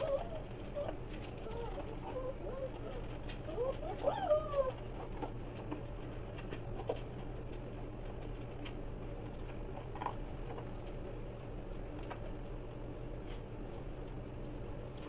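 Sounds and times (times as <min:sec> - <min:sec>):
puppies eating from dish: 0:00.0 - 0:15.0
steady low hum: 0:00.0 - 0:15.0.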